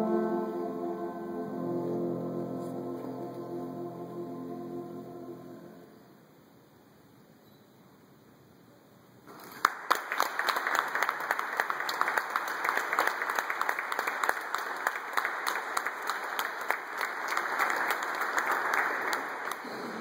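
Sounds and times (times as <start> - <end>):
audience applauding: 9.3 - 20.0
loud sharp claps close by: 9.5 - 20.0.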